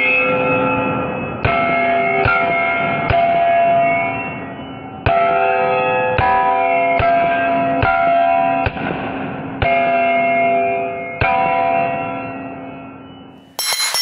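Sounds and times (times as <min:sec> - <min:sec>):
steel plate ringing: 0:13.6 - 0:14.0.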